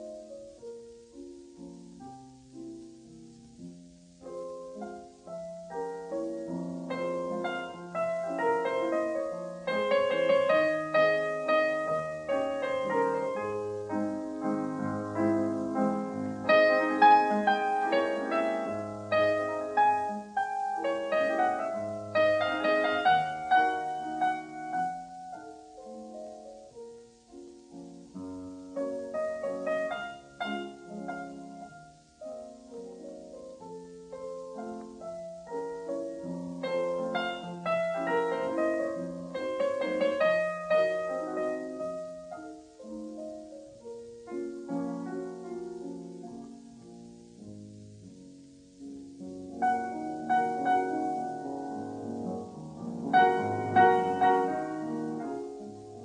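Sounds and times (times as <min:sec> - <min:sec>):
piano music: 0:00.0 - 0:56.0.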